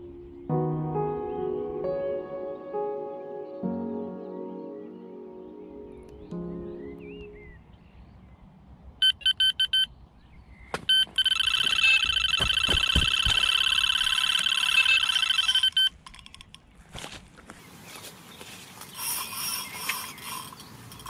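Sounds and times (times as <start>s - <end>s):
bite alarm beeps: 9.0s - 9.9s, 10.9s - 15.9s.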